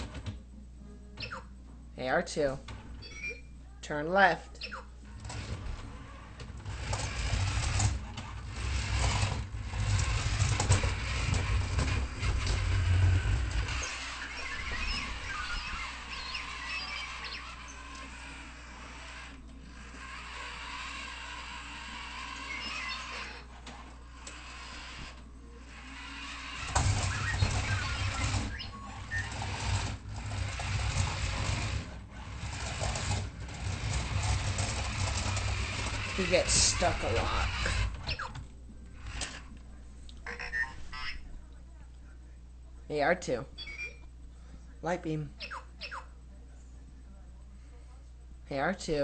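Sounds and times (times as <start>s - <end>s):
toy robot motors whirring: 4.6s - 38.4s, 39.0s - 39.6s.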